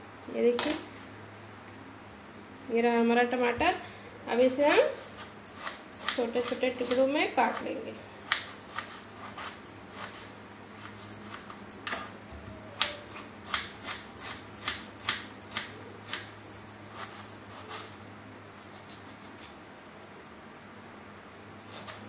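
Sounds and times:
knife chopping on cutting board: 0:05.6 - 0:07.7.

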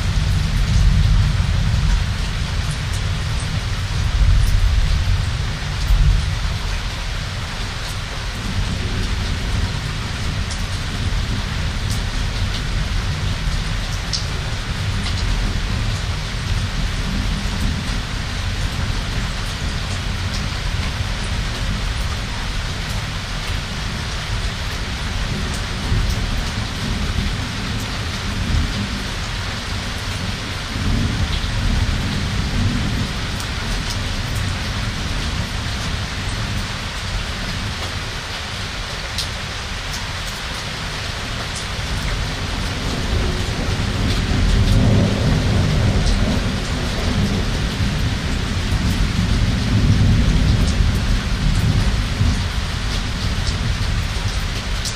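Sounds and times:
steady rain: 0:00.0 - 0:54.9
thunder rumbling: 0:41.8 - 0:54.9.

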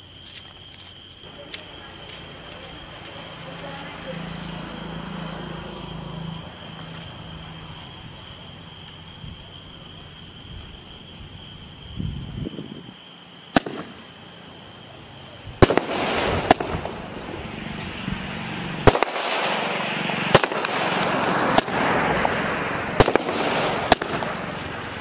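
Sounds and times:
firework shots: 0:13.5 - 0:14.2, 0:15.5 - 0:25.0
sharp firework pop: 0:13.6 - 0:14.0
crackle of bursting stars: 0:23.0 - 0:25.0.

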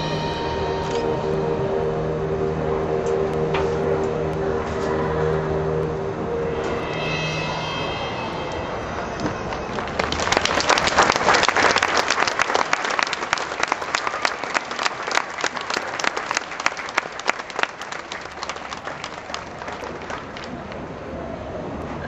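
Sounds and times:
audience applauding: 0:09.4 - 0:20.8.

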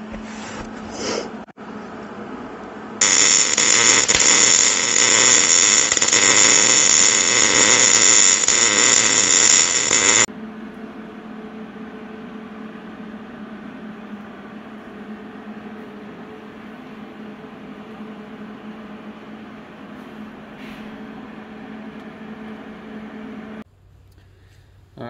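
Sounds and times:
welder arc crackling: 0:03.0 - 0:10.3.

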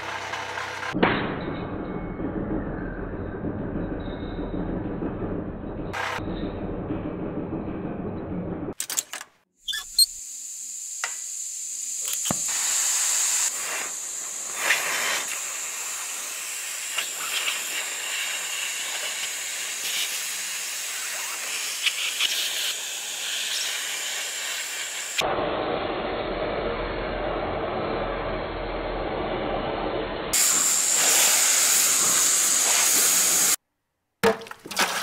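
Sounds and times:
gas torch flame hissing: 0:10.9 - 0:33.6.

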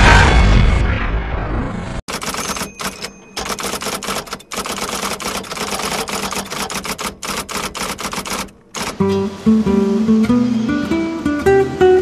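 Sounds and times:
typewriter keys clacking: 0:02.1 - 0:09.0.

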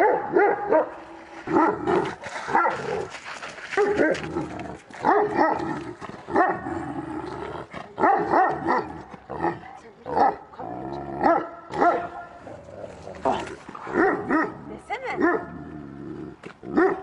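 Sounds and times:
dogs barking and yelping: 0:16.8 - 0:17.0.

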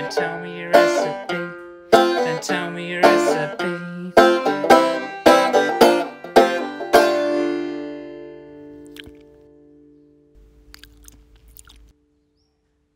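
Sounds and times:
banjo chord ringing: 0:00.0 - 0:08.7
banjo plucked notes: 0:00.0 - 0:09.9.

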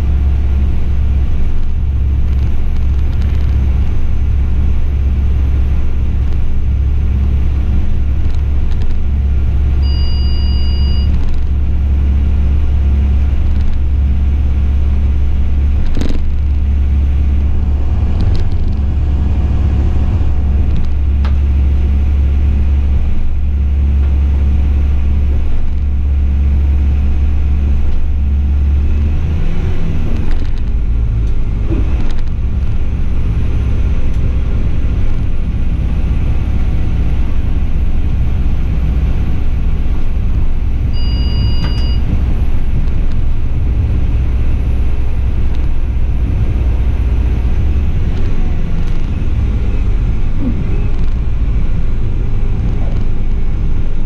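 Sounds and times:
railcar rumbling on track: 0:00.0 - 0:54.0
brief high tone: 0:09.8 - 0:11.2, 0:40.9 - 0:42.1.

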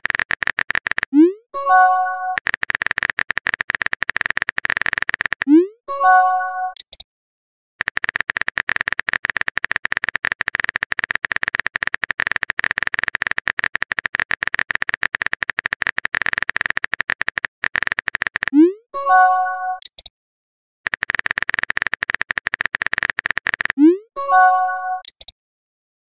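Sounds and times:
keyboard typing clicks: 0:00.0 - 0:07.0, 0:07.8 - 0:20.1, 0:20.9 - 0:25.4.

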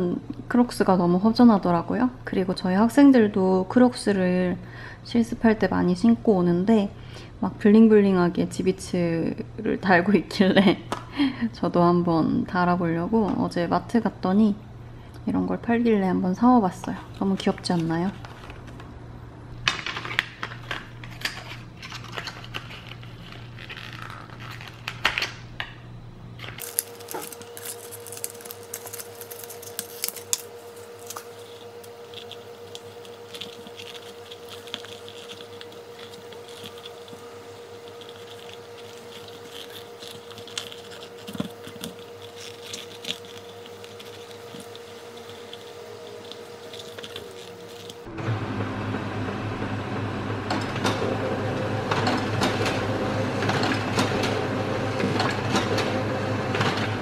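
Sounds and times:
steady hum: 0:00.0 - 0:57.0
plastic blister pack crinkling: 0:19.6 - 0:25.4, 0:26.4 - 0:48.1
rubber charms scratching and clicking: 0:19.9 - 0:25.3, 0:26.4 - 0:48.1.

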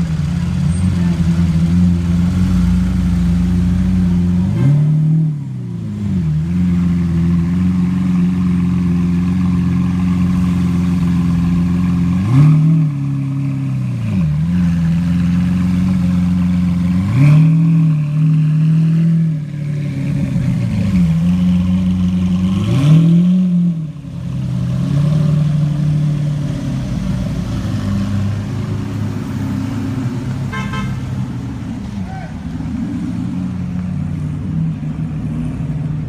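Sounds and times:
car engine revving: 0:00.0 - 0:36.0.

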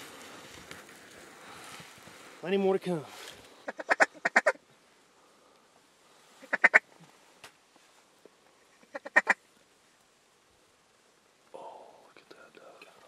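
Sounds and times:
duck quacking: 0:03.6 - 0:04.6, 0:06.4 - 0:06.8, 0:08.8 - 0:09.4.

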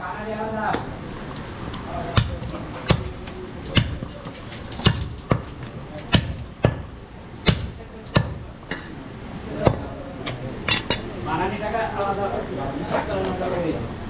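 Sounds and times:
cleaver chopping meat and bone: 0:02.0 - 0:08.5.

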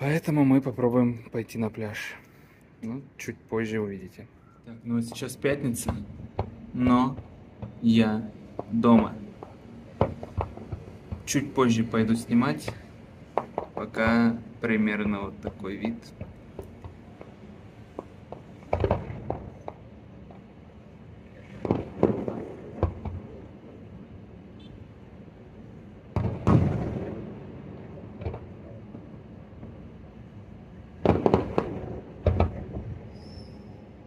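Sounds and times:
fireworks bursting: 0:05.0 - 0:24.0, 0:26.0 - 0:34.0.

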